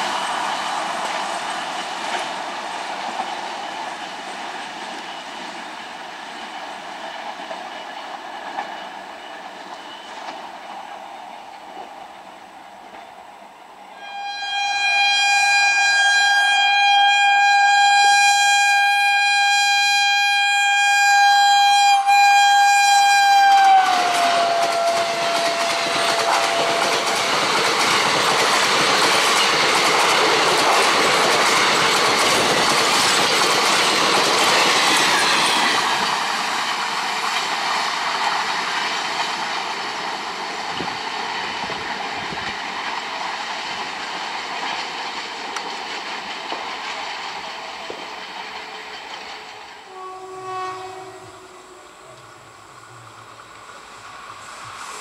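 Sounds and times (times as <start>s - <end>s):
train rumble: 0.0s - 13.1s, 14.0s - 55.0s
locomotive horn: 13.9s - 27.6s, 49.8s - 52.4s
train wheels clattering: 23.2s - 51.5s.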